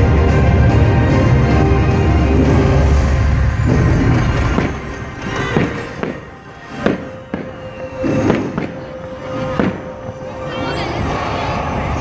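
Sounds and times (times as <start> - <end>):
soundtrack music with held note: 0.0 - 12.0
fireworks bursting with sharp bangs: 2.7 - 10.1.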